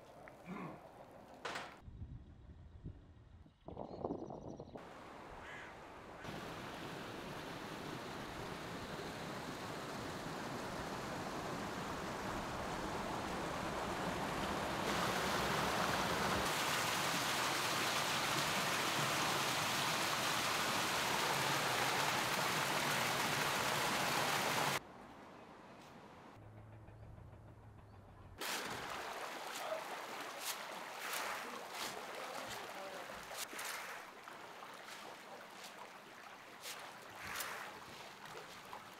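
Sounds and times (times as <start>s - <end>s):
rushing water: 4.8s - 24.8s, 28.4s - 38.9s.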